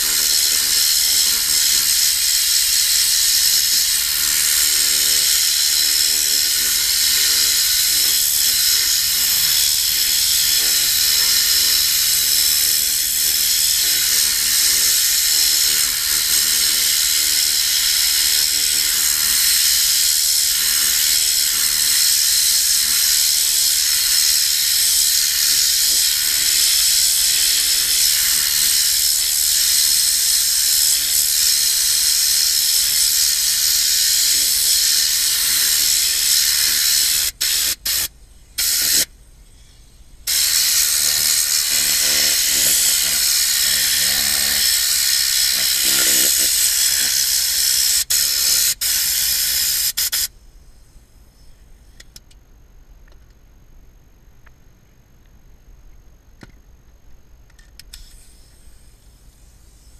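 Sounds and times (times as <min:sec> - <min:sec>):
compressed air gun hissing: 0:00.0 - 0:39.1, 0:40.2 - 0:50.3, 0:57.8 - 0:59.9
faint hum: 0:50.3 - 0:59.9.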